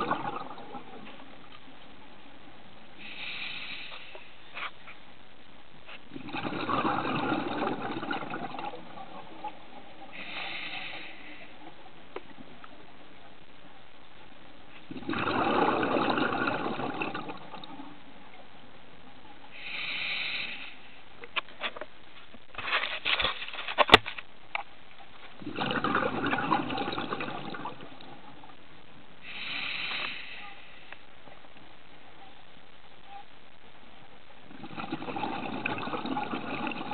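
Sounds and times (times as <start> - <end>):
regulator bubbling exhalations: 0.0 - 1.2, 6.0 - 11.6, 14.8 - 17.9, 25.4 - 28.4, 34.5 - 36.9
regulator hissing inhalations: 3.0 - 4.7, 10.1 - 11.6, 19.5 - 21.0, 29.2 - 31.0.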